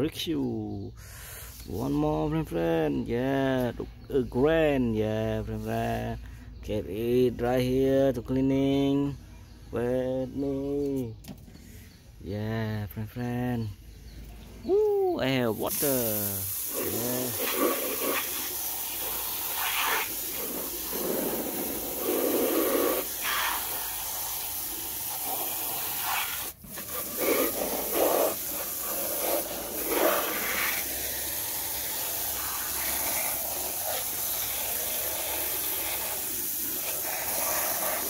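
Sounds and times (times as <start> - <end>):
water jet hissing and splashing: 15.5 - 38.0.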